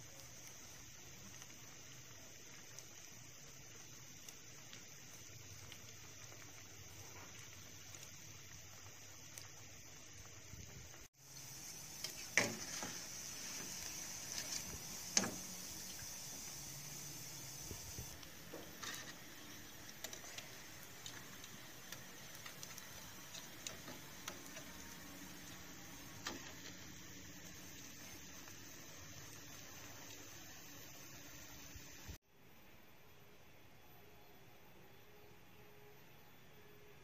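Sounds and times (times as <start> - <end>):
deep-frying sizzle: 0.0 - 32.2.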